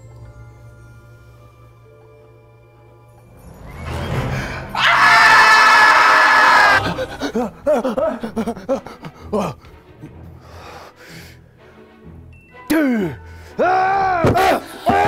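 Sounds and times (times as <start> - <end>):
men screaming: 4.7 - 8.5, 13.6 - 15.0
breathless cries and yelps: 4.7 - 9.7.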